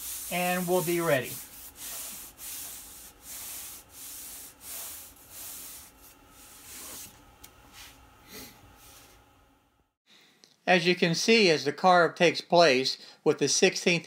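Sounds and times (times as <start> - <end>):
hands rubbing wood swishing: 0.0 - 8.1.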